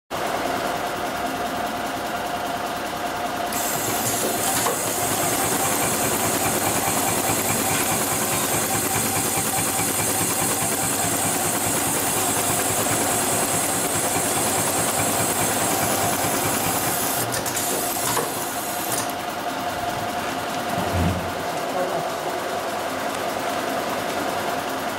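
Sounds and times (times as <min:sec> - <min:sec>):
sewing machine stitching: 0:03.5 - 0:19.2.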